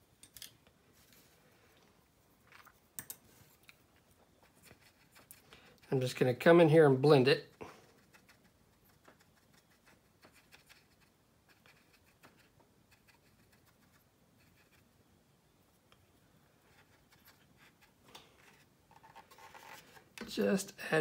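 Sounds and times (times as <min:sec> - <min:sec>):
paintbrush scratching on plastic: 0:04.3 - 0:15.0, 0:16.6 - 0:20.0.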